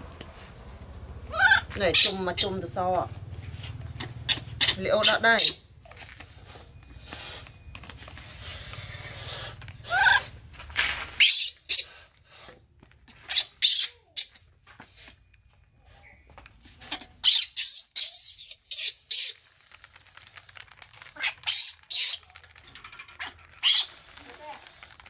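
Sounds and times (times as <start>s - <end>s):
baby monkey squealing: 1.3s - 2.2s, 4.0s - 5.6s, 11.2s - 12.0s, 13.2s - 14.4s, 16.9s - 19.4s, 21.2s - 22.2s, 23.2s - 23.9s.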